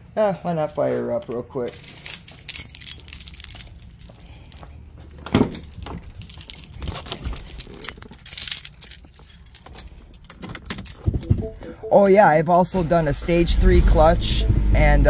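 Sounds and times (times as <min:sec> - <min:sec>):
car keys jangling: 0:01.6 - 0:11.5.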